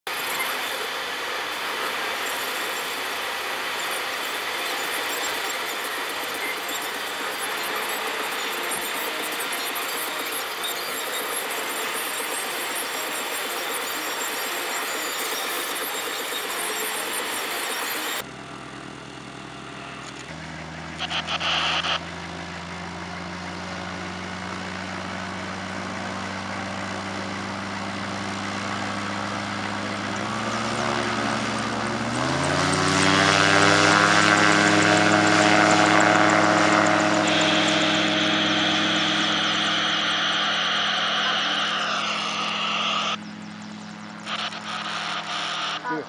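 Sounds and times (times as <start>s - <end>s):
gyroplane engine and propeller: 0.1s - 46.0s
car road noise: 18.2s - 46.0s.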